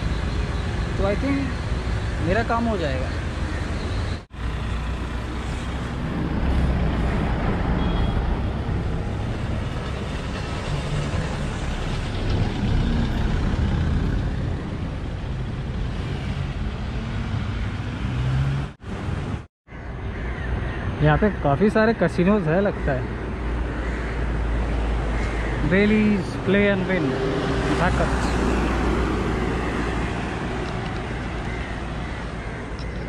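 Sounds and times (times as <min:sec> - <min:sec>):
cars driving past: 0:04.4 - 0:19.4, 0:23.2 - 0:33.0.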